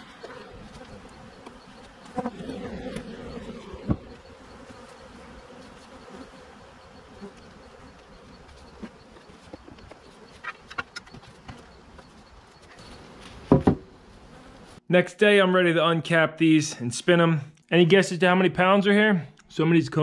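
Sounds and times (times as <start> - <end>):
bees buzzing: 0.0 - 14.8
wooden hive parts clicking: 6.9 - 13.4.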